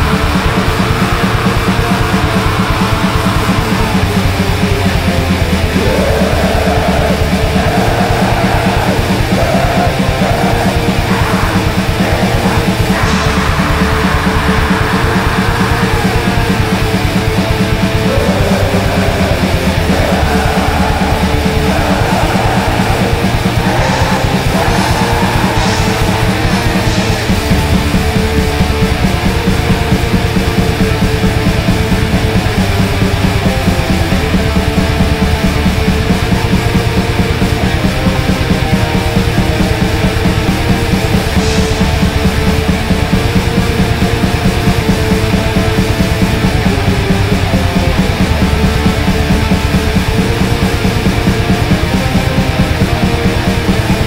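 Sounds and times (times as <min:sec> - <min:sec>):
fast rapid-fire drumming: 0:00.0 - 0:54.0
heavily distorted guitars: 0:00.0 - 0:54.0.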